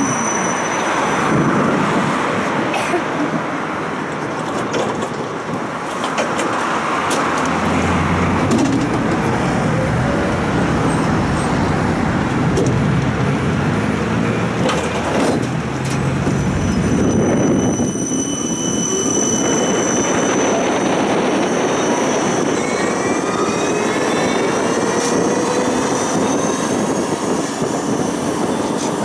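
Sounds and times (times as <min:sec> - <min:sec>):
road traffic passing: 0:00.8 - 0:17.3.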